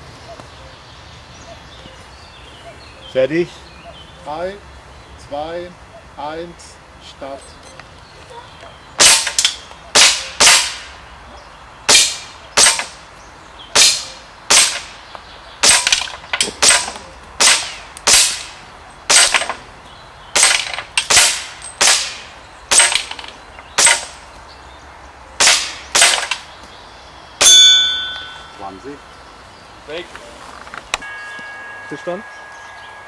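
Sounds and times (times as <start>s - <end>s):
rifle shots: 9.0s - 10.9s, 13.8s - 14.9s, 15.6s - 18.5s, 19.1s - 19.6s, 20.4s - 23.1s, 25.4s - 26.4s.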